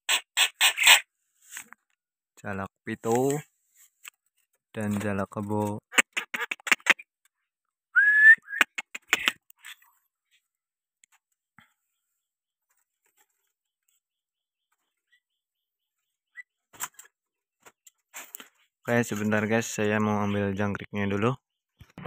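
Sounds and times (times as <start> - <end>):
bird rising whistled call: 8.0 - 8.7
bird clicks: 8.6 - 9.7.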